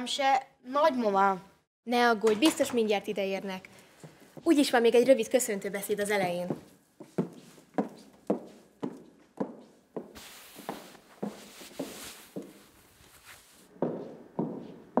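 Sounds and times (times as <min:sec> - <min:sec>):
footsteps on a hard floor: 0:06.3 - 0:15.0
soft rustle: 0:09.6 - 0:13.7.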